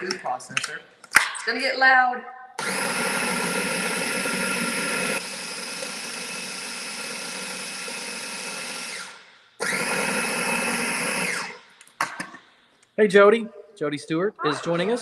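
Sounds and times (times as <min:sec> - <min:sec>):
food processor motor running: 0:02.6 - 0:11.7.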